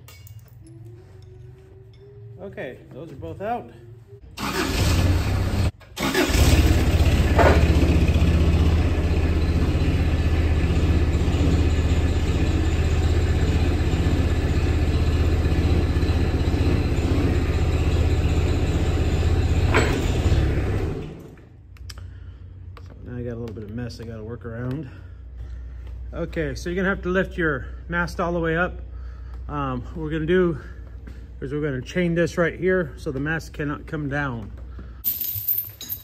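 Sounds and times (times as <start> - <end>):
loader engine under hydraulic load: 4.4 - 21.4.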